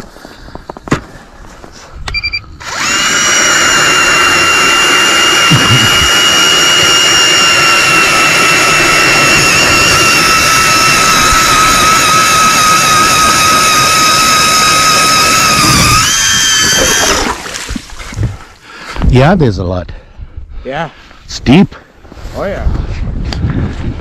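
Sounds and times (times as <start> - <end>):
electric ice auger whining: 2.6 - 17.8.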